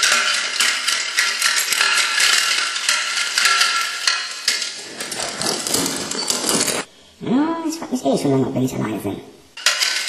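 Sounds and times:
high clinking and rattling: 0:00.0 - 0:06.9, 0:09.6 - 0:10.0.

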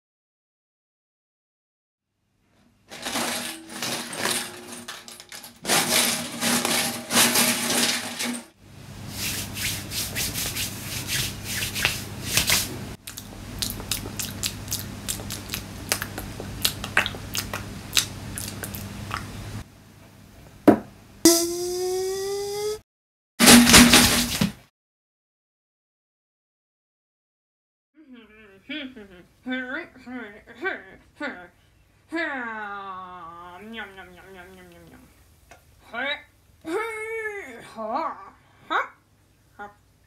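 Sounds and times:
rubbing and scraping crunches: 0:02.9 - 0:08.6
sharp upward sweep: 0:21.3 - 0:22.8.

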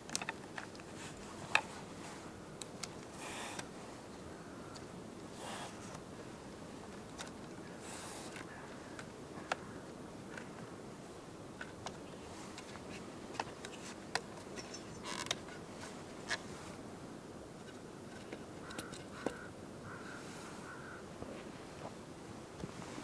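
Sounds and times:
tripod legs clicking and knocking: 0:00.0 - 0:00.9
low background hiss: 0:00.0 - 0:23.0.

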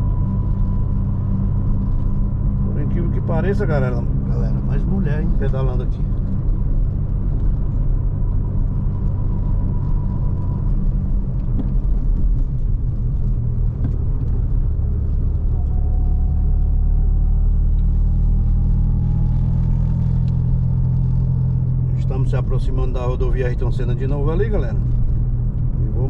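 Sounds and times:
faint thin whine: 0:00.0 - 0:18.4
engine and road rumble: 0:00.0 - 0:26.0.

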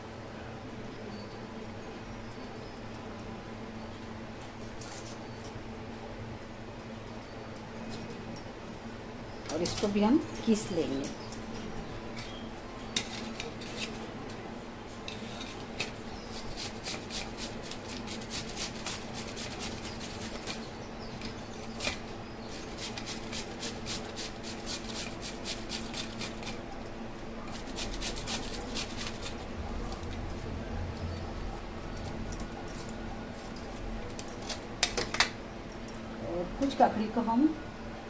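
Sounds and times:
vegetable grating scrapes: 0:13.0 - 0:14.0, 0:16.3 - 0:20.5, 0:21.7 - 0:26.6, 0:27.5 - 0:29.5.

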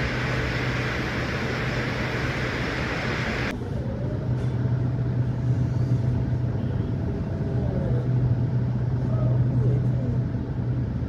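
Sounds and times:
faint thin whine: 0:00.0 - 0:03.5
low machine hum: 0:00.0 - 0:11.0
rumbling background noise: 0:00.0 - 0:11.0.

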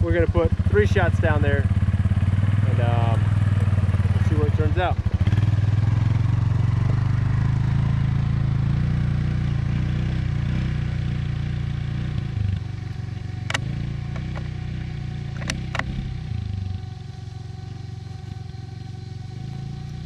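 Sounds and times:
vehicle engine rumble: 0:00.0 - 0:20.0
sharp clicks: 0:13.4 - 0:14.5, 0:15.3 - 0:16.1.

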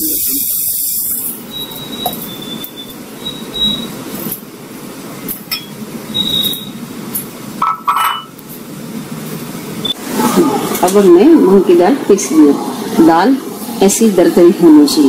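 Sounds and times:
glass clinking on steel: 0:05.5 - 0:05.8, 0:07.6 - 0:08.4.

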